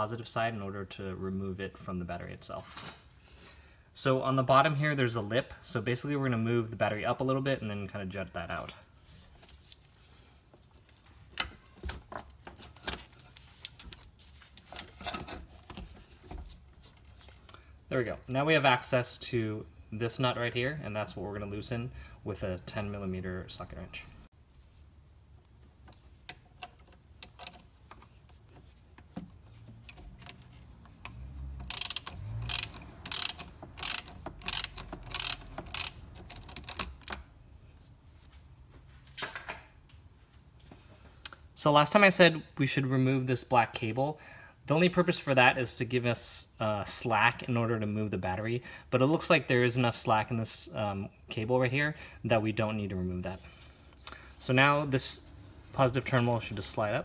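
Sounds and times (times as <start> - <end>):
socket ratchet clicking: 31.0 - 37.2.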